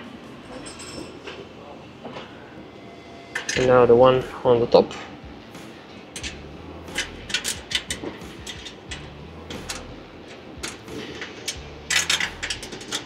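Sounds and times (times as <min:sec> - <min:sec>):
hand tools clicking on metal: 0:06.2 - 0:13.0.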